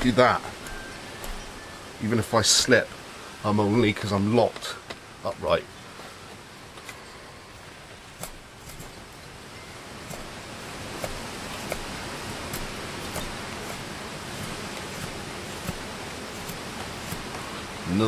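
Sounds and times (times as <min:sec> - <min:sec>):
wind and rain hiss: 0:00.0 - 0:18.0
knife carving wood clicks: 0:11.0 - 0:17.4.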